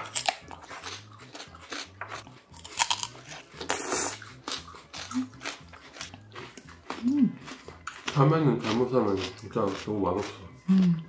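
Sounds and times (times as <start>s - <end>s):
crunching and chewing melon: 0.0s - 11.0s.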